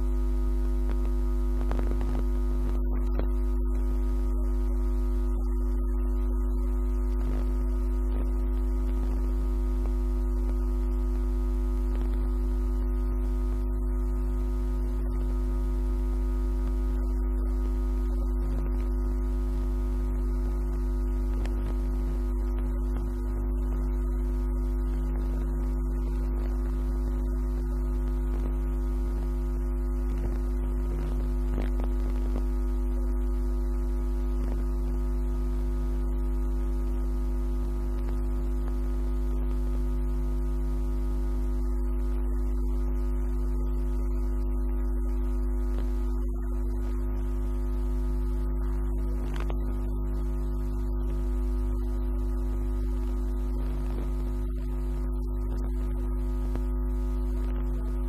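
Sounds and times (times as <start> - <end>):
steady low hum: 0.0 - 58.0
constant higher tones: 2.8 - 7.2.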